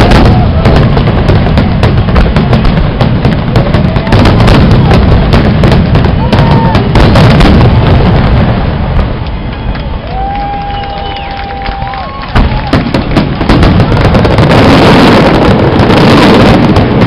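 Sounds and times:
fireworks bursting and crackling: 0.0 - 17.0.

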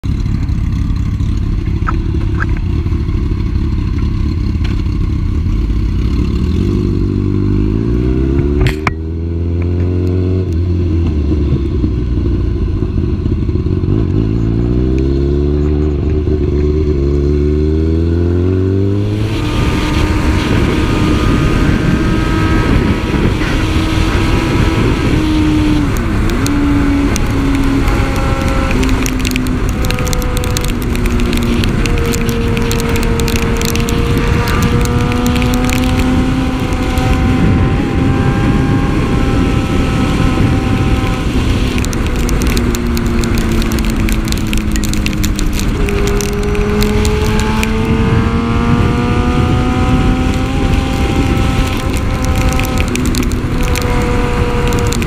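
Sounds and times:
motorcycle engine accelerating: 0.0 - 55.0
wet road noise: 0.0 - 55.0
wind rushing: 18.8 - 42.8, 45.7 - 55.0.

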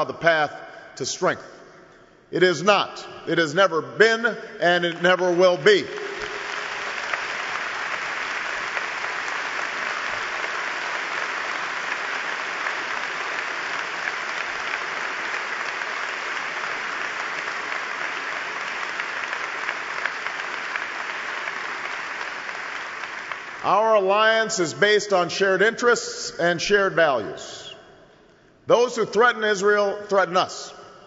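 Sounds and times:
large audience applauding: 5.7 - 23.8.

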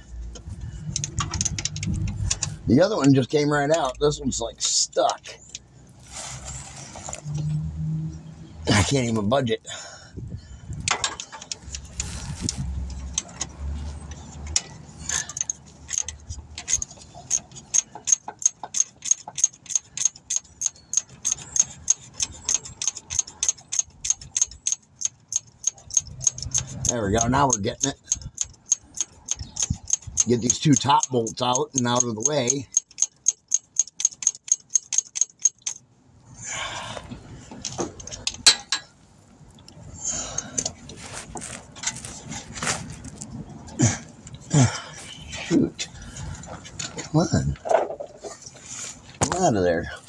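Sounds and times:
socket ratchet clicking: 0.4 - 3.1, 14.4 - 35.8
scraping rustle: 6.0 - 7.6, 11.2 - 18.0, 40.4 - 43.8, 44.4 - 50.0.

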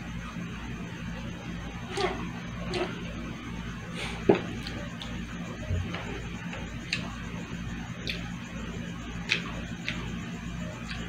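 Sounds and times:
steady low hum: 0.0 - 11.0
wet chewing clicks: 6.8 - 7.2, 8.0 - 8.3, 9.2 - 10.1.

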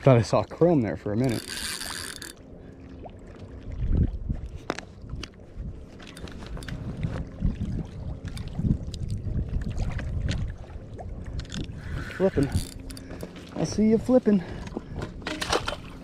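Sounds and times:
wind buffeting microphone: 3.6 - 16.0.

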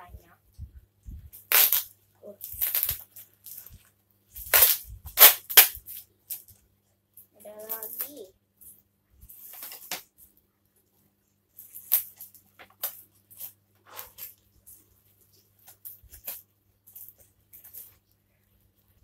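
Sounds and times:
plastic wrapping crinkling and tearing: 1.3 - 6.6, 7.4 - 8.2, 11.6 - 18.2
scissors cutting plastic: 1.4 - 3.7.

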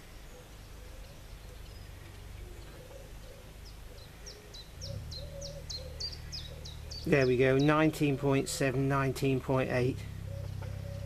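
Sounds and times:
bird chirping: 0.0 - 11.0
low rumble: 4.8 - 7.0.

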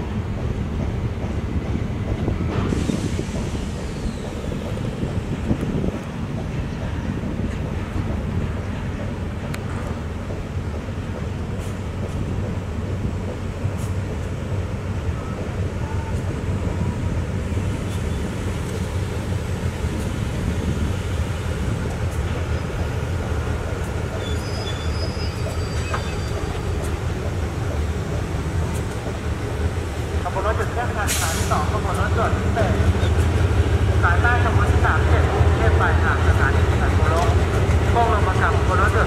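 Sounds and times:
locomotive engine drone: 0.0 - 39.0
faint high squeals: 24.2 - 26.6.

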